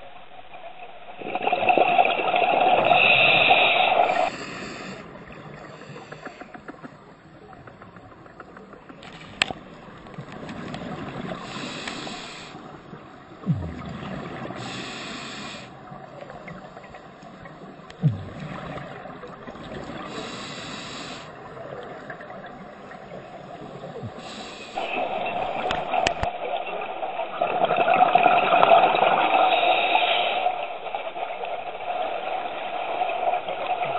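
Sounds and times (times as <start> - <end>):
exhaled bubbles gurgling: 1.0 - 33.9
regulator inhalation hiss: 2.8 - 6.6, 11.4 - 13.0, 14.4 - 15.9, 20.0 - 21.5, 23.6 - 26.0, 29.5 - 30.5.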